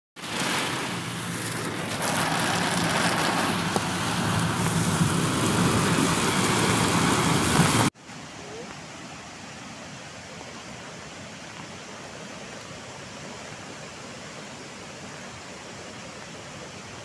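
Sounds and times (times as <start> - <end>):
low engine hum: 0.2 - 7.9
floodwater rushing: 0.2 - 17.0.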